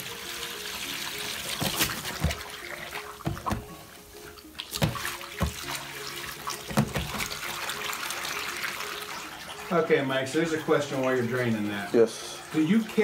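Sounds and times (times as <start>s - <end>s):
background music: 0.0s - 13.0s
water splashing: 1.1s - 13.0s
water pouring from a hose: 4.6s - 13.0s
sharp knocks: 4.8s - 5.7s, 6.7s - 7.3s.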